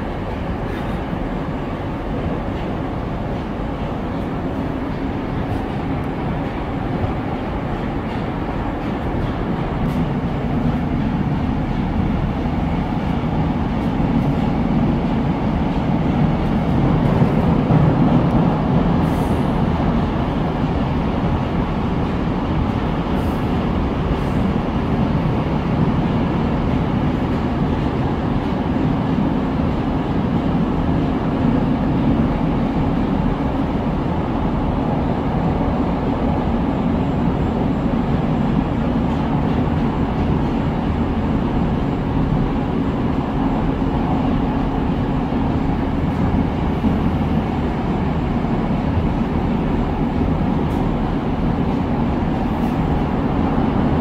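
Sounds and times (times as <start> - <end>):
train rumbling through tunnel: 0.0 - 54.0.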